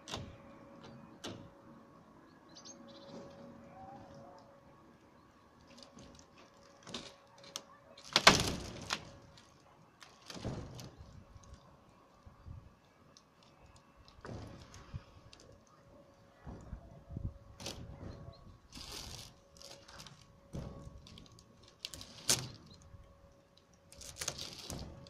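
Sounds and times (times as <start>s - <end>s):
boards and roofing sheets scraping: 5.5s - 12.3s, 12.9s - 25.0s.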